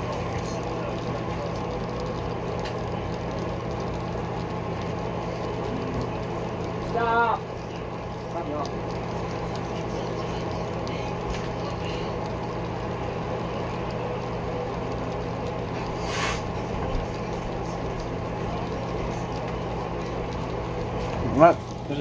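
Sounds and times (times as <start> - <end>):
short hiss: 16.0 - 16.5.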